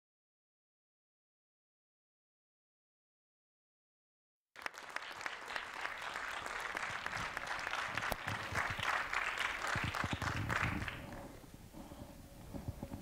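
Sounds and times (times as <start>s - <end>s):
audience applauding: 4.6s - 11.3s.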